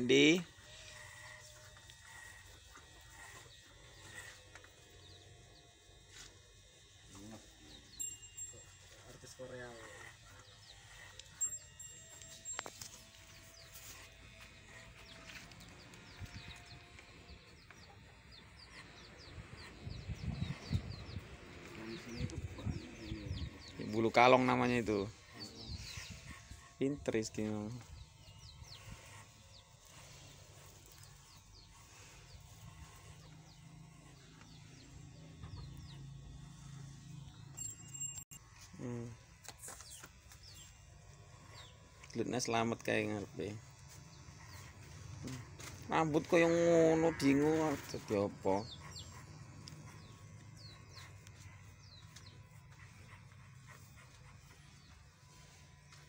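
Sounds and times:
birds chirping: 0:00.0 - 0:56.0
hair clipper humming: 0:00.0 - 0:56.0.

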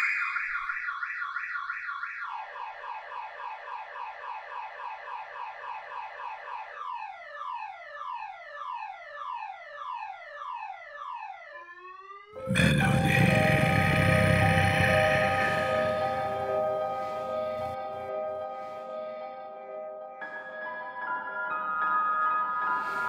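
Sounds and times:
car alarm: 0:00.0 - 0:12.4.

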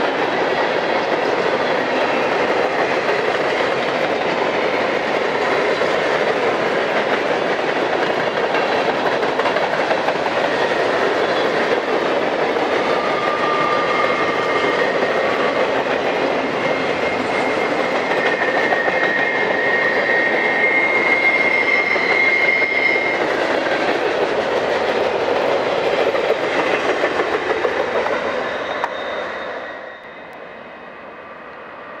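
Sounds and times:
train wheels rumbling on rails: 0:00.0 - 0:32.0
wheels squealing: 0:12.6 - 0:15.7, 0:16.3 - 0:23.6, 0:28.0 - 0:30.4.

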